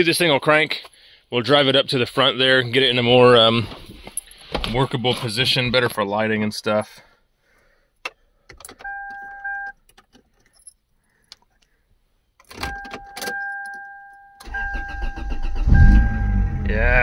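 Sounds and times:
car engine starting and running: 14.4s - 17.0s.

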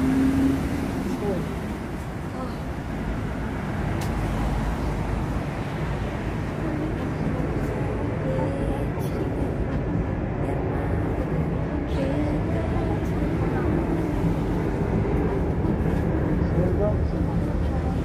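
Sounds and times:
street traffic rumble: 0.0s - 18.0s
faint voices: 6.4s - 18.0s.

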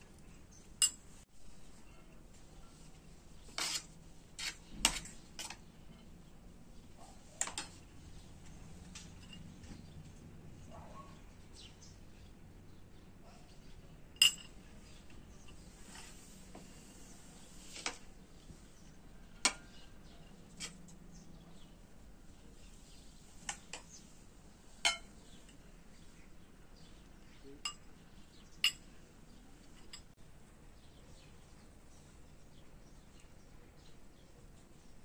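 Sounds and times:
ceramic plates clinking: 14.2s - 14.7s, 24.8s - 25.6s.

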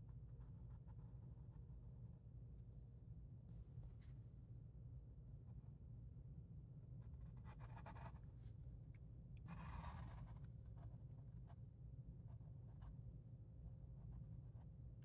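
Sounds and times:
low steady hum: 0.0s - 15.0s
pencil scratching on paper: 7.1s - 8.2s, 9.5s - 11.6s.

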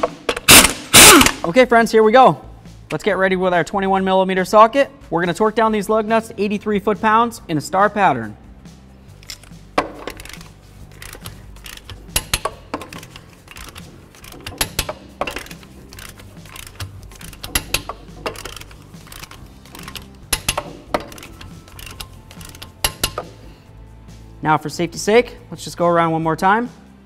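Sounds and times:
faint background music: 0.0s - 27.0s
ratchet wrench metallic clicks: 9.1s - 23.4s.

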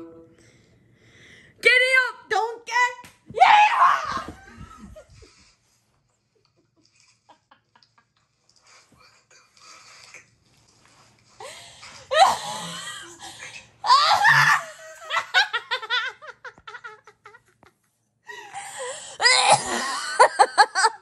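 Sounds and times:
young women laughing: 14.1s - 17.7s, 18.3s - 21.0s.

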